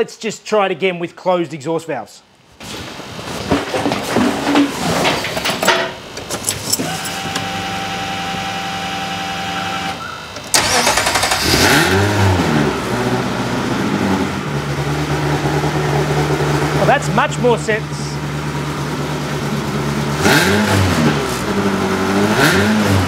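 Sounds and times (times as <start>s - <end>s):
car engine starting and idling: 6.2s - 23.0s
starter whine: 6.2s - 23.0s.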